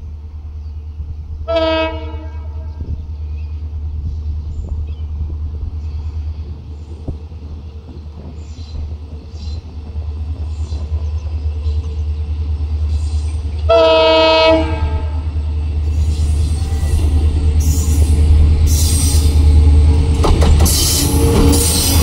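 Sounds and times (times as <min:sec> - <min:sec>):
diesel locomotive engine rumble: 0:00.0 - 0:22.0
locomotive horn blast: 0:01.5 - 0:02.9, 0:13.7 - 0:15.3.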